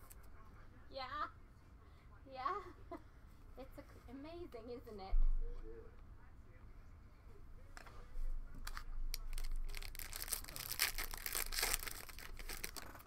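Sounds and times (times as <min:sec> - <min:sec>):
foil wrapper crinkling and tearing: 0:08.7 - 0:13.0.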